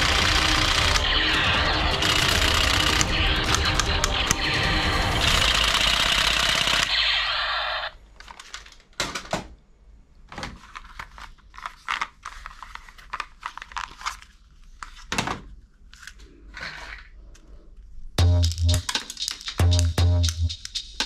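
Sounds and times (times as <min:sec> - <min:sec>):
electronic toy gun sound effect: 0:00.0 - 0:08.0
plastic toys clicking and knocking: 0:08.2 - 0:09.5, 0:10.4 - 0:14.3.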